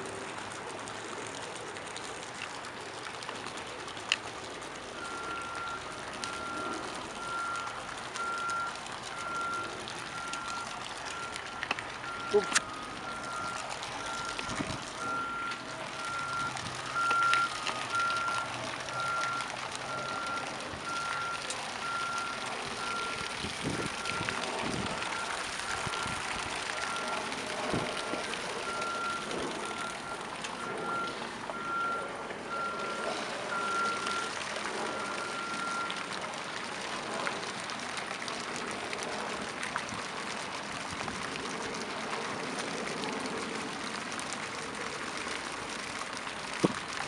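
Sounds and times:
outdoor background noise: 0.0s - 47.0s
vehicle reversing alarm beeping: 4.9s - 36.1s.

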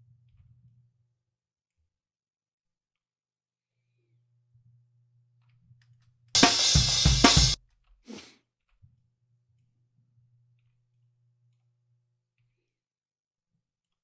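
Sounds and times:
drum kit playing: 6.4s - 7.6s.

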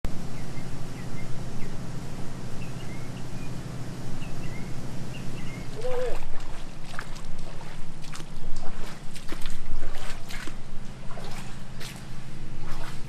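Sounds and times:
steady outdoor hum: 0.0s - 13.0s
small birds chirping: 0.1s - 8.0s
rubber boots wading through water: 5.7s - 13.0s.

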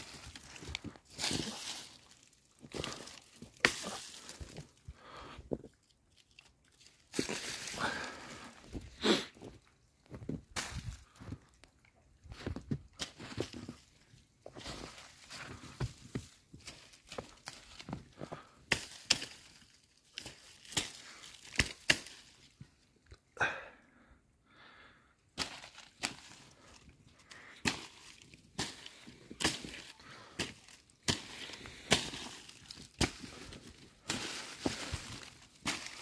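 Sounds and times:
footsteps crunching in snow: 0.0s - 4.8s, 7.1s - 11.4s, 27.7s - 36.0s.

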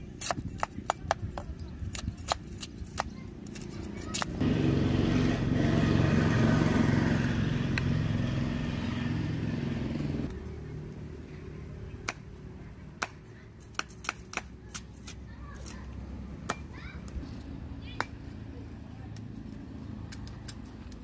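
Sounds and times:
vehicle engine running: 4.4s - 13.0s
cleaver chopping on wooden block: 13.0s - 14.9s.

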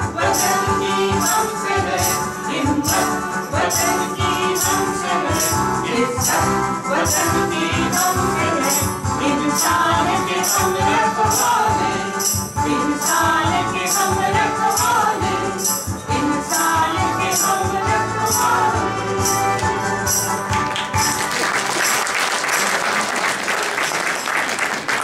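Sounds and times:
group of voices singing: 0.0s - 20.3s
electronic keyboard with jingling beat: 0.0s - 21.3s
applause: 20.4s - 25.0s.

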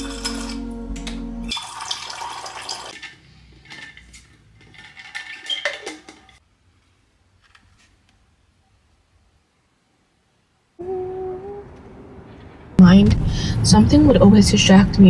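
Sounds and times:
water dispenser hum: 0.0s - 3.3s
water pouring into a glass: 1.5s - 3.0s.

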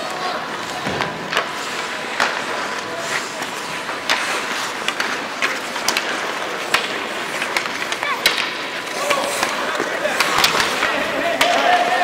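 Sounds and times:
hockey sticks and puck clacking: 0.0s - 12.0s
skate blades scraping on ice: 0.0s - 12.0s.

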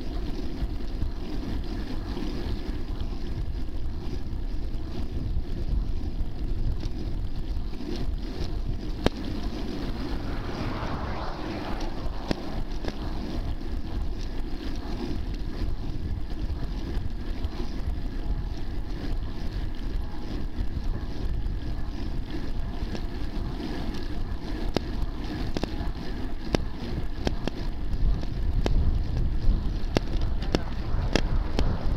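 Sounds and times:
bicycle tyre and road noise: 0.0s - 31.9s
wind buffeting microphone: 0.0s - 31.9s
car passing from behind: 8.8s - 15.2s, 29.6s - 31.9s.

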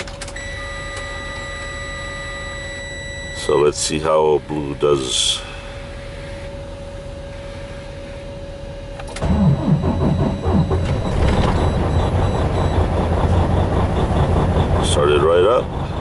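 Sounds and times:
diesel engine cranking and running: 9.1s - 16.0s
steady tone: 9.2s - 16.0s.

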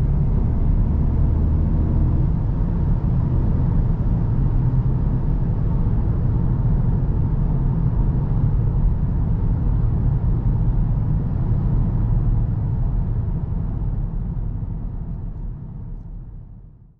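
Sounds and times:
car engine and tyres rumbling: 0.0s - 16.9s.

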